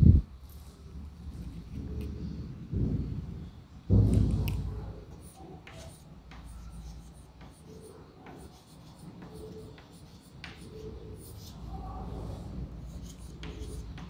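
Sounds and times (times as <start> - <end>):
chalk tapping and scratching on chalkboard: 4.0 - 14.0.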